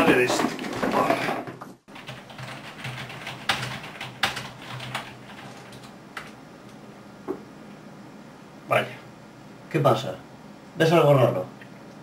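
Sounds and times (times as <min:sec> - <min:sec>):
computer keyboard typing: 0:01.9 - 0:06.4.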